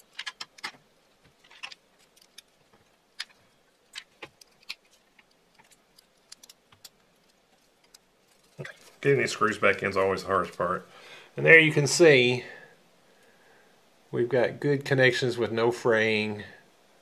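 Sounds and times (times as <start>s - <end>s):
small screws and plastic plug clicking: 3.2s - 8.0s.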